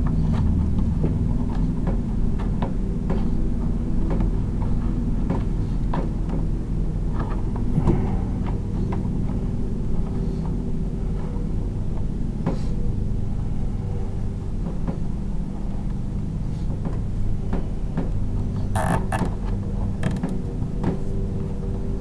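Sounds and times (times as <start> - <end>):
low mechanical hum: 0.0 - 22.0
wires clicking and rattling: 18.8 - 20.4.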